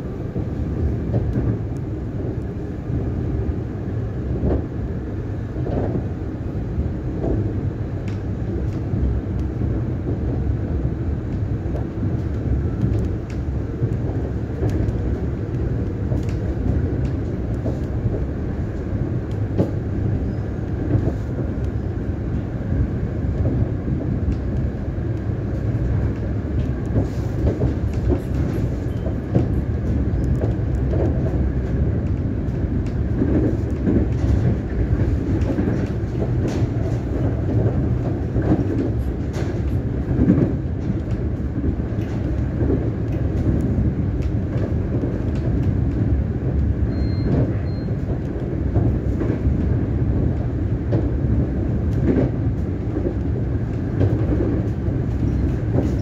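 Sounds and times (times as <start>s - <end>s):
train wheels on rail: 0.0s - 56.0s.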